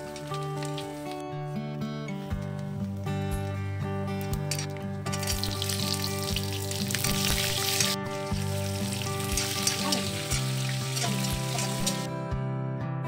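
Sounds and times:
vegetables sizzling in hot oil: 0.0 - 1.2, 5.1 - 12.1
acoustic guitar music: 0.0 - 13.0.

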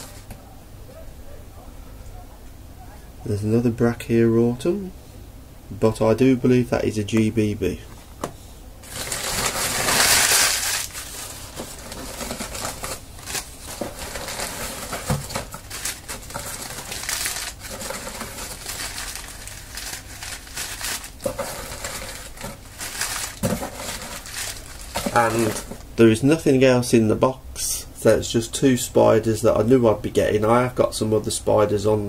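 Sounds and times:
crumpled newspaper crinkling: 0.0 - 0.3, 8.8 - 25.9.

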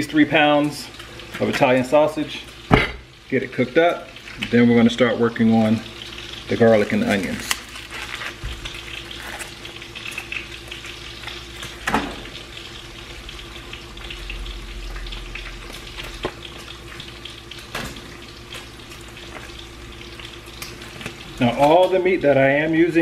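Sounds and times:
meat sizzling in pan: 0.0 - 23.0
plastic wrap rustles and clicks: 7.1 - 10.4.

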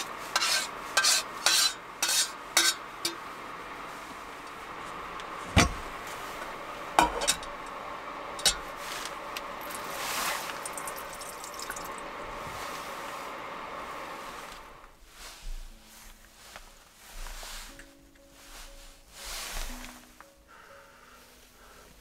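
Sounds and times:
steady hiss: 8.4 - 22.0
water spraying onto hands: 9.6 - 12.0.

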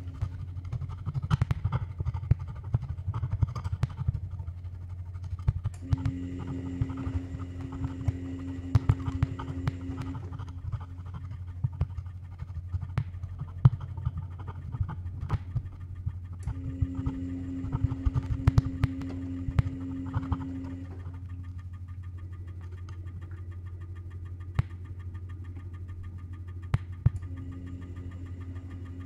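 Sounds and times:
scattered clicks and scratches: 0.0 - 29.0
steady low hum: 0.0 - 29.0.

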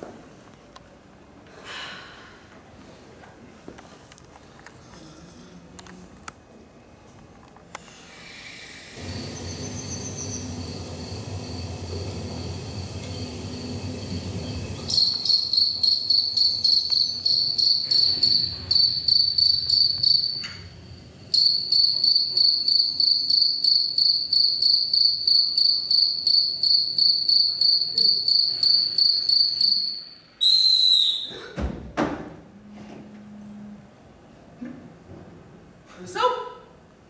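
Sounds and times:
cricket chirping: 9.0 - 31.2
falling whistle-like tone: 29.4 - 31.4.

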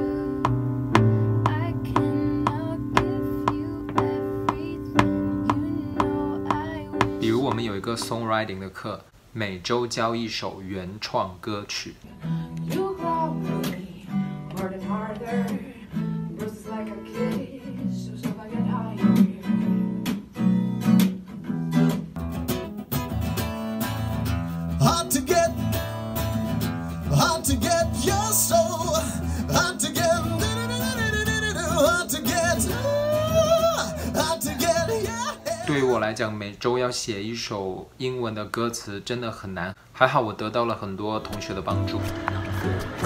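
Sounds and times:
acoustic guitar strumming: 0.0 - 8.5, 12.2 - 36.2, 41.2 - 43.0
man singing through a pa: 6.5 - 8.2, 24.8 - 25.8, 27.0 - 36.2.

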